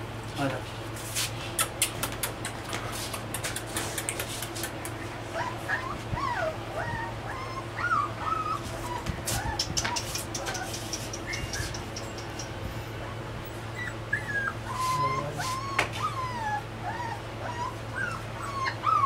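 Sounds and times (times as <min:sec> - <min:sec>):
puppy whimpering: 0:01.6 - 0:12.7, 0:13.7 - 0:19.0.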